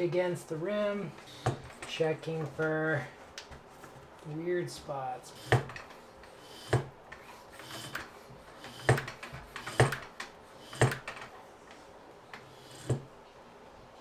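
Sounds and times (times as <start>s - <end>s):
bicycle wheel knocking on wood: 1.3s - 2.0s, 5.4s - 5.9s, 6.6s - 7.0s, 8.6s - 11.2s.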